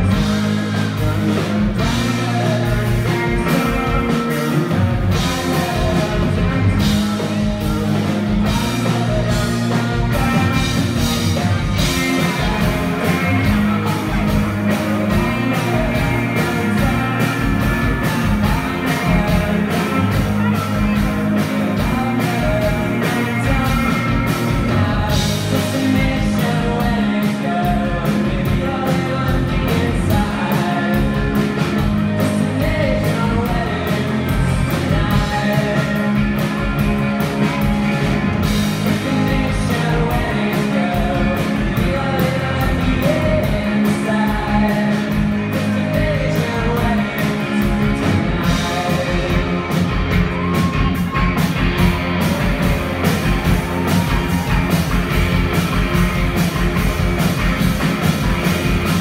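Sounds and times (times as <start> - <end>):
sung vocals: 0.0 - 56.0
drums with a steady beat: 0.0 - 59.0
electric guitars: 0.0 - 59.0
keyboard: 0.0 - 59.0.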